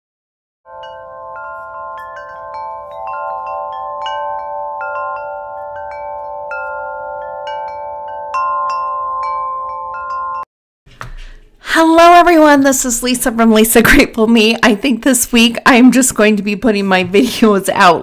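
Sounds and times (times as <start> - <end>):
wind chimes tinkling: 0.7 - 10.5.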